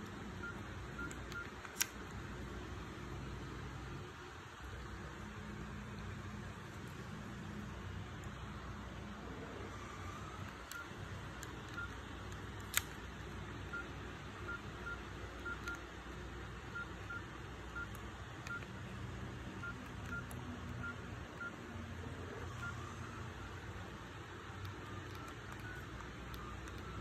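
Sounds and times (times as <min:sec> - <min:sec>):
phone keypad beeps: 0:00.4 - 0:01.9, 0:10.6 - 0:12.0, 0:13.7 - 0:13.9, 0:14.5 - 0:15.8, 0:16.7 - 0:18.7, 0:19.6 - 0:21.6, 0:22.4 - 0:23.6, 0:24.6 - 0:27.0.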